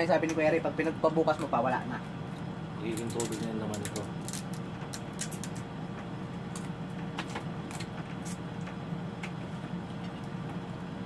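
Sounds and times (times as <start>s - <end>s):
steady low hum: 0.0s - 11.0s
crab shells cracking: 2.9s - 5.7s.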